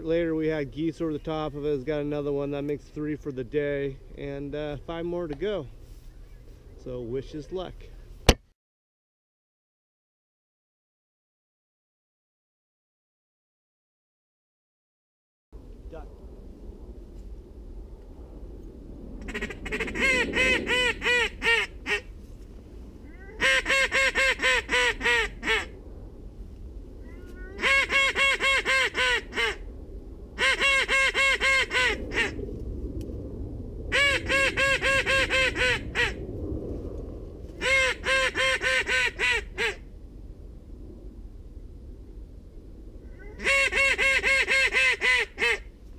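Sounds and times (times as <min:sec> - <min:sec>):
goose call honks and clucks: 0:19.2 - 0:22.1, 0:23.2 - 0:25.7, 0:27.5 - 0:29.6, 0:30.4 - 0:32.4, 0:33.9 - 0:36.2, 0:37.6 - 0:39.8, 0:43.2 - 0:45.7.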